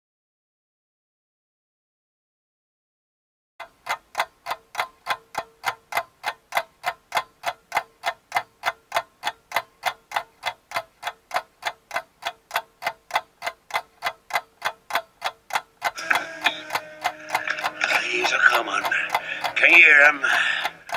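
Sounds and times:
clock ticking: 0:03.6 - 0:20.9
faint hum: 0:16.0 - 0:20.9.

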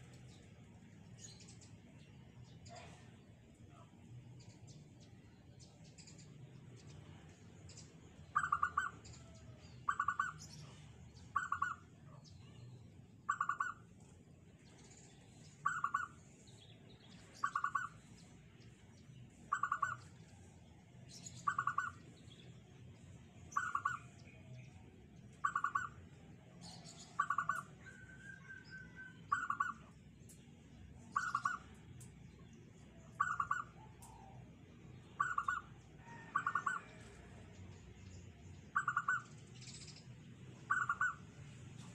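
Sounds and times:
dove cooing: 0:38.8 - 0:39.2.

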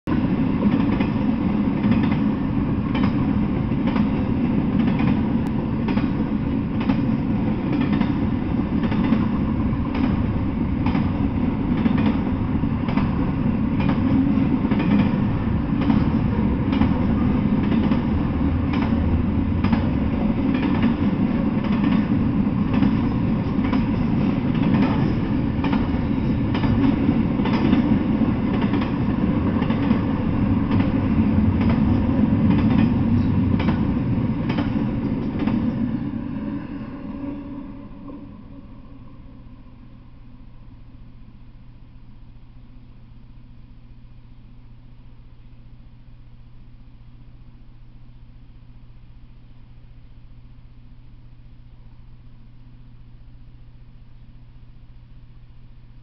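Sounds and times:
steel wheels rumbling on rail: 0:00.1 - 0:40.8
wheels clicking over rail joints: 0:15.8 - 0:35.7.

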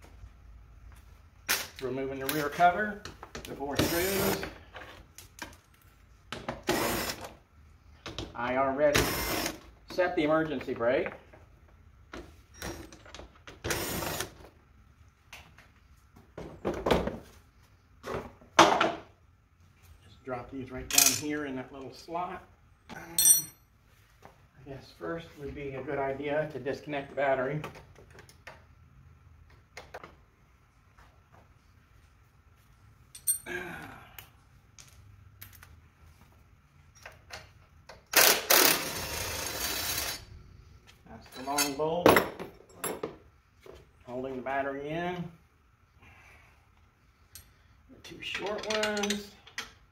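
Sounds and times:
cordless drill running: 0:06.6 - 0:07.2, 0:09.0 - 0:09.6, 0:13.7 - 0:14.3, 0:38.2 - 0:40.2
tools clicking and clinking: 0:20.9 - 0:21.3, 0:22.9 - 0:23.6, 0:33.1 - 0:33.5, 0:47.3 - 0:47.6, 0:48.2 - 0:49.8.

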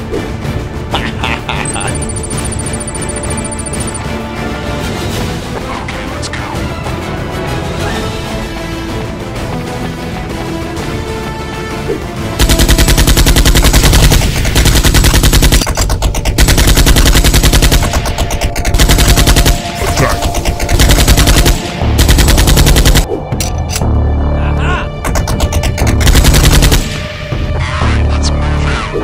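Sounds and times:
background music: 0:00.0 - 0:29.0
automatic gunfire sound effects: 0:12.4 - 0:23.1, 0:25.0 - 0:27.1.

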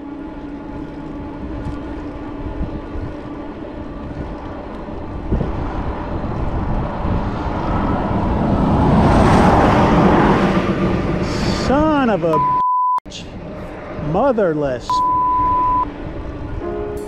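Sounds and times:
wind noise on microphone: 0:00.0 - 0:12.0, 0:15.1 - 0:17.0
vehicle passing close: 0:00.0 - 0:12.4.

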